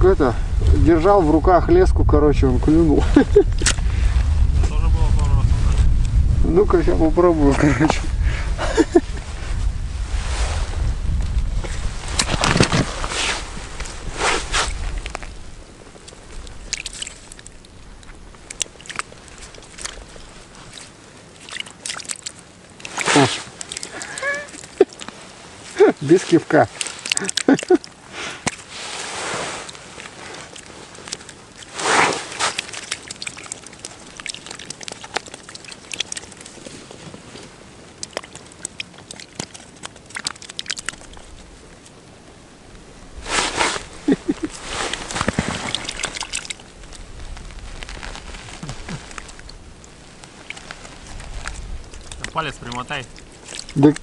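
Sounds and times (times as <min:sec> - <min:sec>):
faint steady hiss: 0:00.0 - 0:54.0
snow and ice crunching: 0:07.4 - 0:54.0
small clicks and crackles: 0:11.6 - 0:42.0, 0:43.3 - 0:54.0
clothing rustling: 0:28.6 - 0:34.2, 0:43.2 - 0:53.9.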